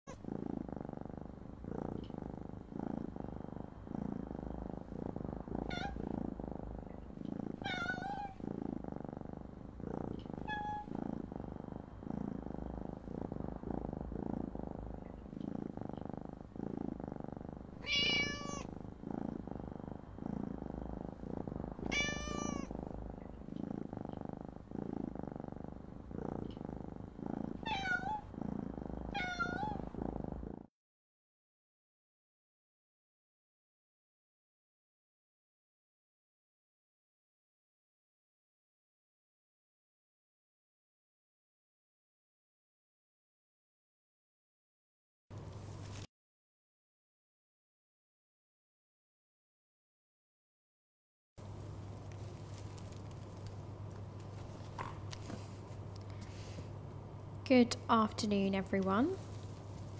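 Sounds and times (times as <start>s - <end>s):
cat purring: 0.1s - 30.7s, 51.4s - 59.9s
cat meowing: 5.7s - 6.0s, 7.6s - 8.4s, 10.4s - 10.9s, 17.8s - 18.7s, 21.8s - 22.7s, 27.6s - 28.3s, 29.1s - 29.8s.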